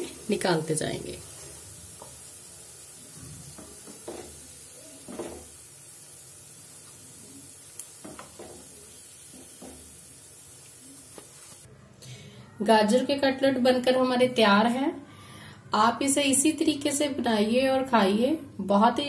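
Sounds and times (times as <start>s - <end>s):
food sizzling in oil: 0.0s - 11.7s
wooden spatula knocking pan: 3.5s - 4.4s, 5.1s - 5.5s, 8.0s - 9.9s.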